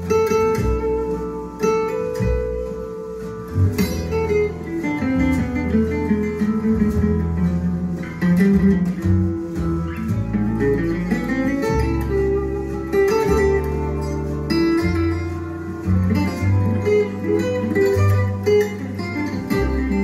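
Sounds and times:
guitar music with low bass: 0.0s - 20.0s.

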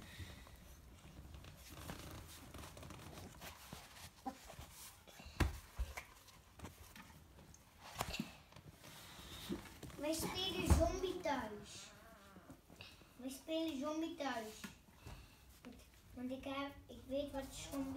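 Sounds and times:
thump: 10.6s - 11.0s.

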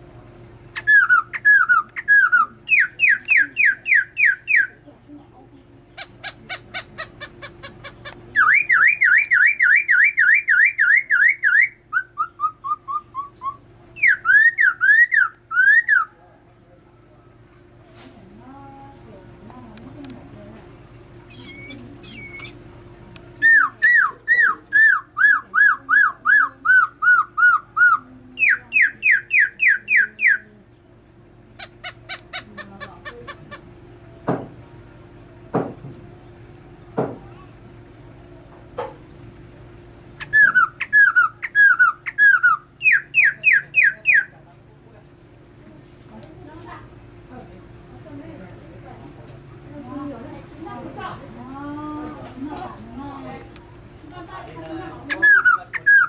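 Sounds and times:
bird singing whistled notes: 0.8s - 4.8s, 8.4s - 16.1s, 21.3s - 22.6s, 23.3s - 30.4s, 40.2s - 44.3s, 55.1s - 56.0s.

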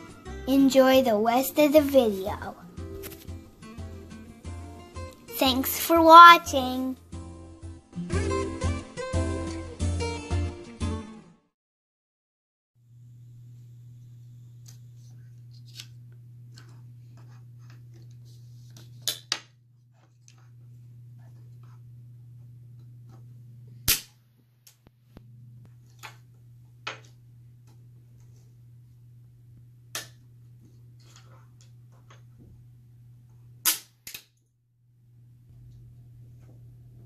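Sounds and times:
steady low hum: 19.6s - 33.7s, 34.8s - 37.0s.

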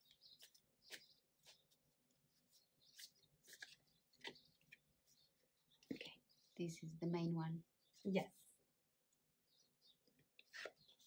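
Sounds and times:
cards being shuffled: 2.8s - 4.8s.

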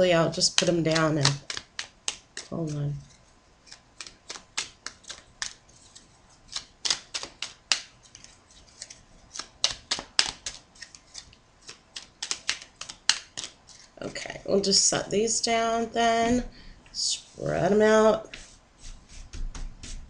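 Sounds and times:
cards being shuffled: 0.4s - 14.0s.

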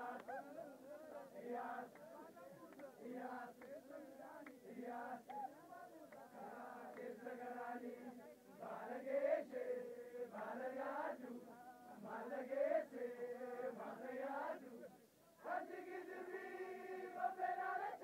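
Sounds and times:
group of voices chanting: 0.0s - 18.0s.

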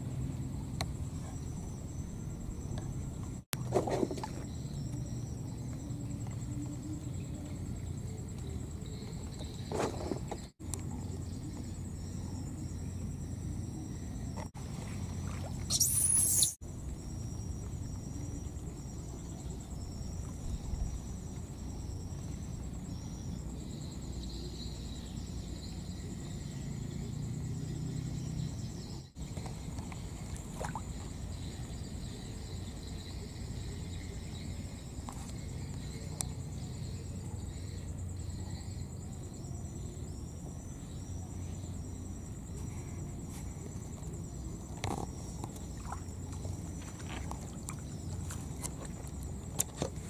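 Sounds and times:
faint high whine: 0.0s - 50.0s
short high chirps: 15.7s - 16.6s.

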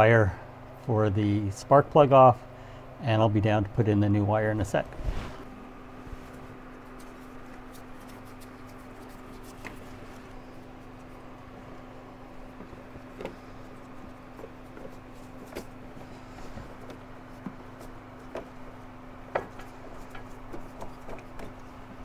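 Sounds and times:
steady low hum: 0.0s - 22.0s
hands handling engine parts: 6.2s - 11.5s, 12.3s - 21.8s.

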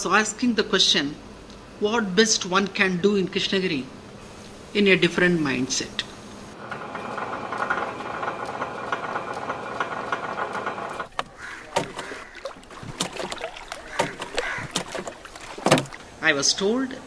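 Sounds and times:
wet fish slapping and splashing: 11.0s - 16.2s.

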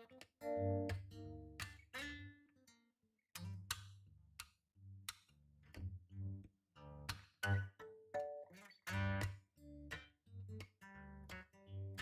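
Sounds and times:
acoustic guitar plucking and strumming: 7.6s - 9.9s.

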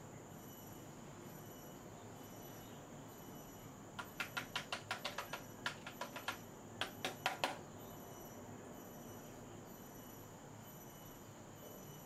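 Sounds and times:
sharp clicks: 4.0s - 7.6s.

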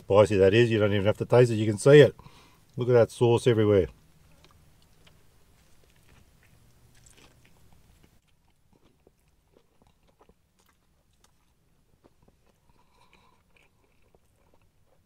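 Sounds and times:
person chewing food: 4.1s - 15.0s.

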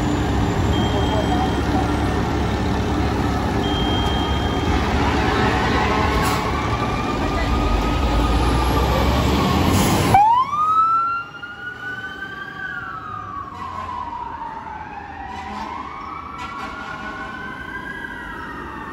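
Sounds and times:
fire truck diesel engine: 0.0s - 18.9s
siren wailing: 6.4s - 18.9s.

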